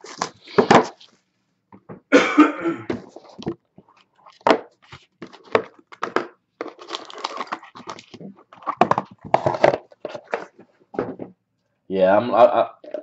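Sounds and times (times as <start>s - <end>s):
cardboard box rustling and scraping: 6.7s - 10.7s.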